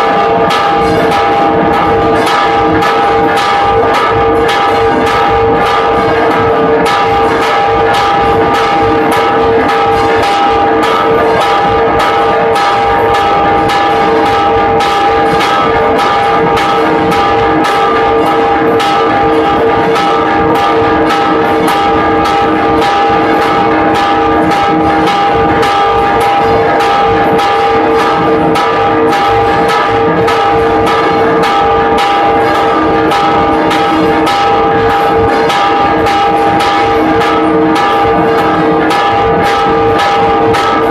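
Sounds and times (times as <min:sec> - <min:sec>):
church bells ringing rapidly: 0:00.0 - 0:40.9.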